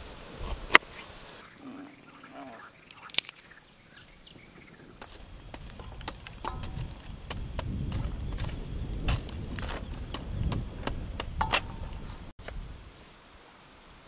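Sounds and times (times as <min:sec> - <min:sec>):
wood fire crackling: 0:00.0 - 0:12.8
metal tongs setting charcoal: 0:02.9 - 0:03.5, 0:05.0 - 0:12.0.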